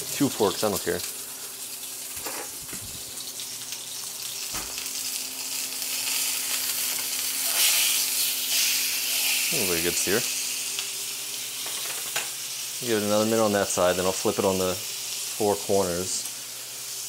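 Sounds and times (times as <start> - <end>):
steak sizzling in a frying pan: 0.0 - 17.0.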